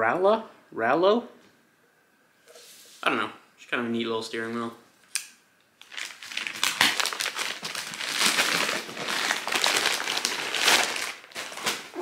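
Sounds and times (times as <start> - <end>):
plastic bag crinkling: 5.8 - 12.0.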